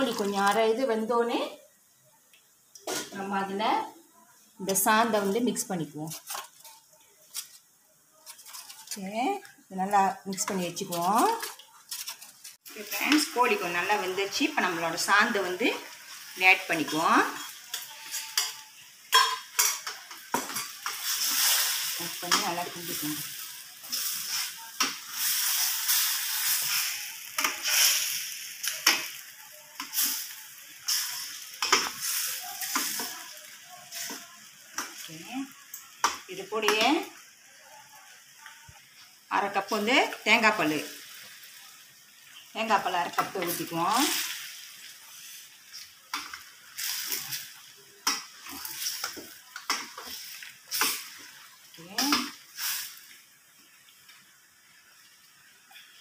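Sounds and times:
curry sizzling in a pan: 0.0 - 56.0
metal spatula scraping a pan: 8.2 - 9.2, 10.4 - 35.1, 42.7 - 51.4.

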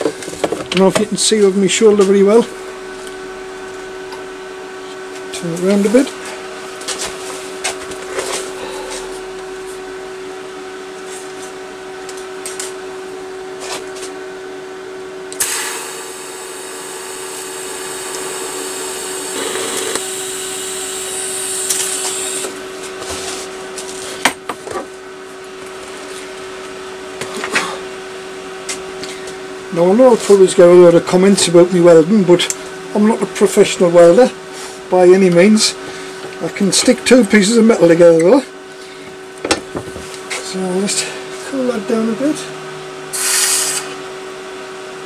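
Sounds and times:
steady hum: 0.0 - 45.0
welding arc hissing and buzzing: 0.8 - 6.8, 15.4 - 22.6, 43.1 - 44.0.

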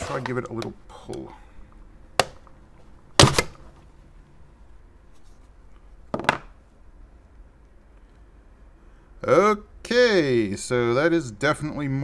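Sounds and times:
plastic knock: 6.1 - 6.5.

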